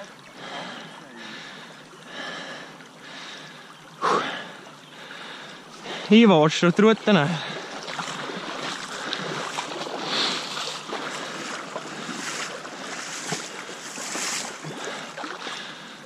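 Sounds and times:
river water sloshing: 0.0s - 16.0s.

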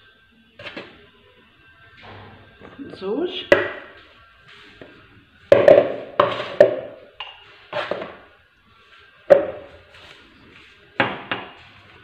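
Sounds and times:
containers set down on stone countertop: 4.8s - 8.3s, 9.2s - 9.8s.

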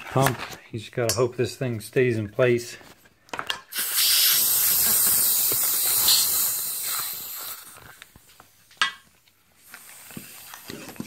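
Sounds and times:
compressed air hissing: 3.7s - 8.2s, 9.6s - 11.0s.

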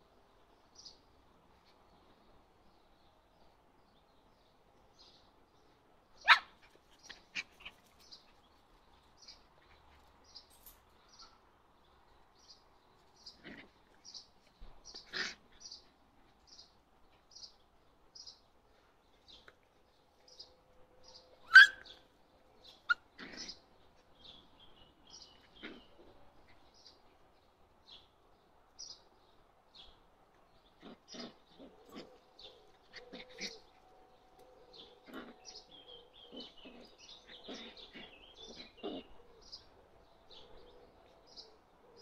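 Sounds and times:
puppies yipping and barking: 6.2s - 6.5s, 21.4s - 22.0s.

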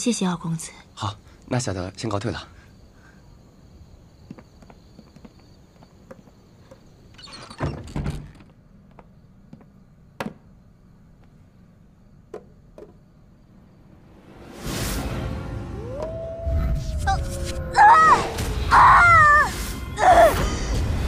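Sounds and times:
wooden box knocking on table: 9.5s - 10.4s, 12.3s - 13.0s
wooden box thunks: 10.2s - 10.5s.

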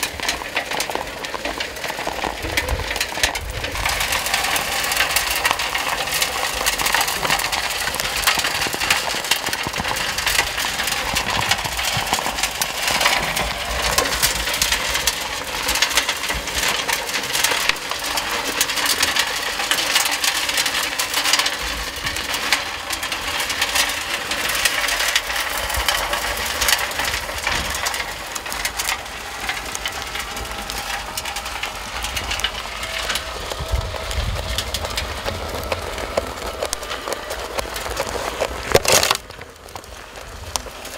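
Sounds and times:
stones rattling in turning drum: 0.0s - 40.9s
electric motor hum: 23.1s - 40.9s.

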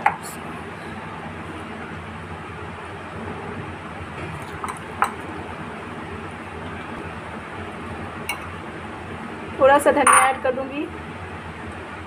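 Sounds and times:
spoon clinking against bowl: 8.3s - 8.5s, 10.1s - 10.4s.

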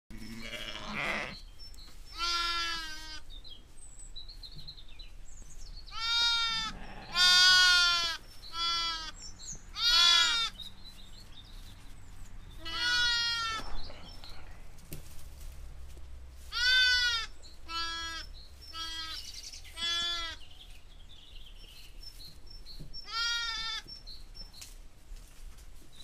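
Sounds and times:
sheep and lambs bleating: 0.1s - 1.4s, 2.1s - 3.3s, 5.9s - 10.6s, 12.6s - 13.6s, 16.5s - 20.4s, 23.0s - 23.8s.

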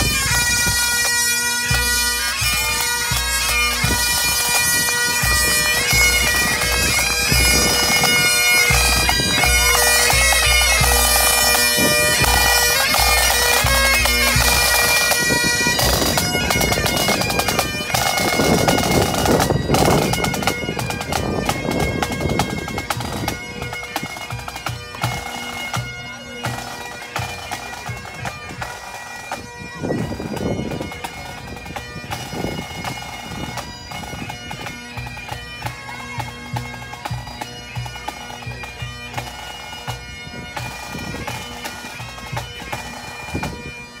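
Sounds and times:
bagpipes playing: 0.0s - 44.0s.

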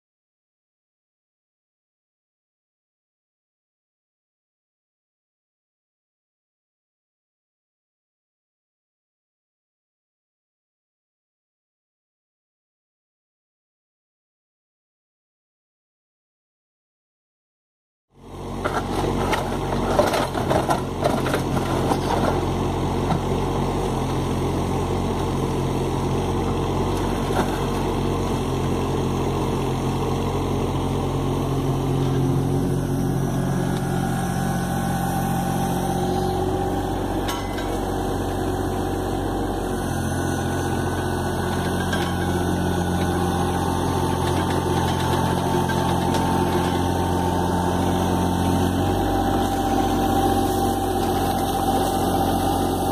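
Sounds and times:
excavator diesel engine running: 18.2s - 52.9s.

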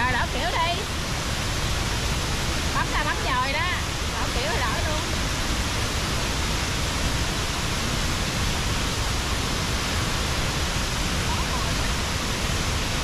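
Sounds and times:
waterfall roaring: 0.0s - 13.0s.

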